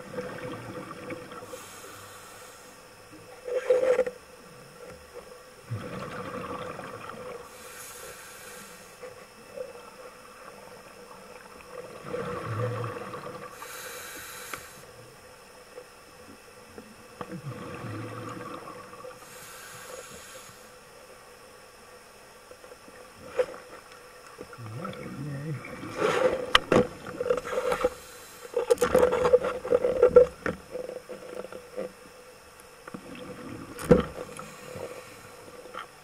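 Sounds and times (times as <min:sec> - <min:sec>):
faint steady hum: 0:00.0 - 0:36.0
regulator hissing inhalation: 0:01.5 - 0:02.8, 0:07.5 - 0:09.0, 0:13.6 - 0:14.9, 0:19.2 - 0:20.7
diver exhaling bubbles: 0:05.7 - 0:07.4, 0:11.8 - 0:13.5, 0:17.3 - 0:19.1, 0:24.5 - 0:26.5.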